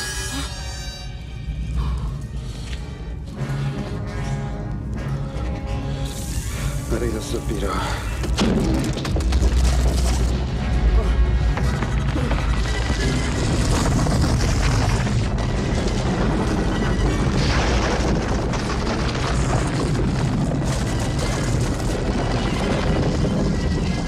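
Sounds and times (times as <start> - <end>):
dramatic film score: 0.0 - 24.0
stone boulder rolling rumble: 8.2 - 24.0.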